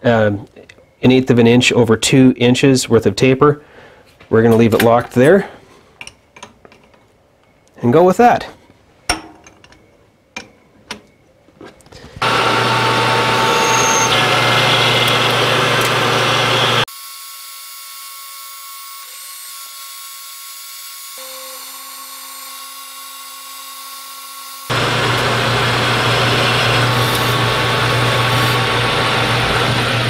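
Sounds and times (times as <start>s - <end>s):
metal lathe running: 12.2s - 16.9s, 24.7s - 30.0s.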